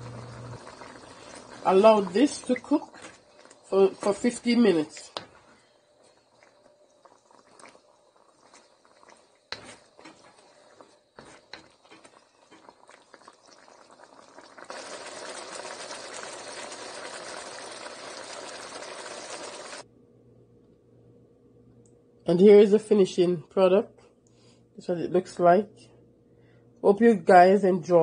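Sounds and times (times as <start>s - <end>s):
pot bubbling hiss: 0.0s - 19.8s.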